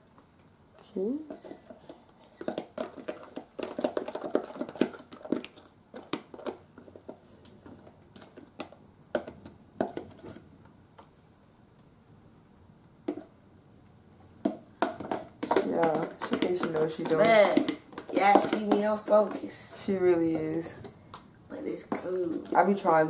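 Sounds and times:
fork scraping and tapping batter: 1.3s - 10.4s, 14.4s - 20.9s.

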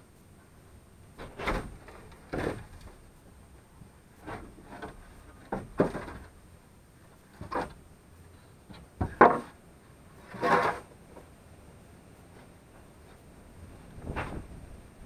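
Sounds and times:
scraping on dirt floor: 10.2s - 11.3s.

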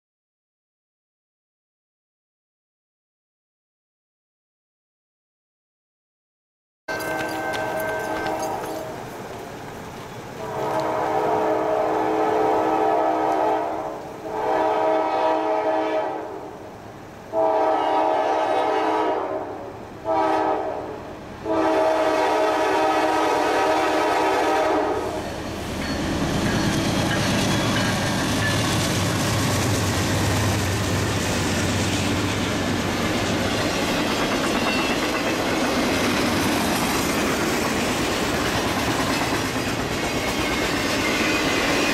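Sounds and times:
locomotive air horn blasts: 6.9s - 9.0s, 10.4s - 16.6s, 17.3s - 25.3s
wheels clicking over rail joints: 6.9s - 10.9s, 25.7s - 41.9s
train rumbling past: 6.9s - 41.9s.

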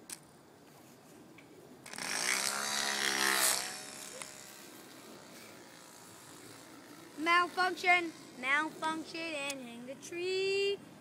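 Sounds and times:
toy propeller buzzing: 1.8s - 9.7s.

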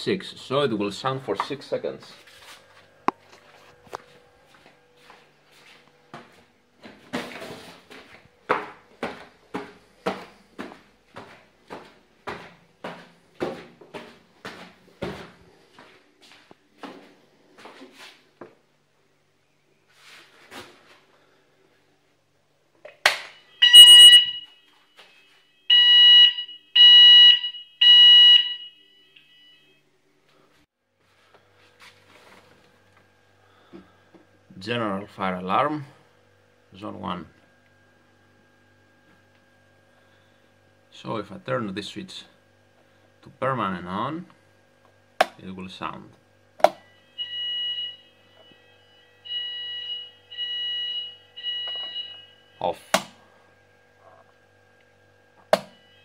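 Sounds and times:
fire alarm beeping: 23.2s - 29.9s, 46.8s - 52.8s, 55.6s - 56.0s.

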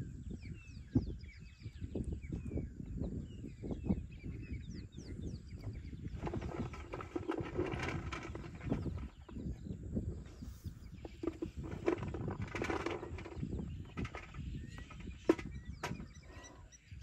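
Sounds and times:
trunk rummaging in metal bucket: 6.0s - 9.5s, 10.3s - 16.4s
elephant chewing and crunching: 6.2s - 9.4s.

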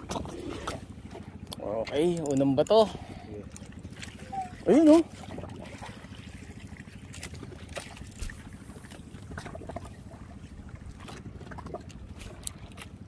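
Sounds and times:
boat motor rumbling: 0.0s - 13.0s
water splashing against hull: 0.0s - 13.0s.

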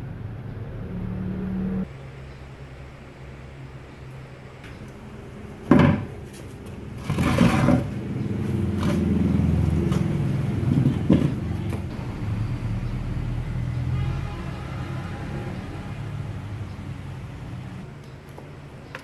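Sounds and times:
metal scraping on concrete: 5.7s - 11.5s.

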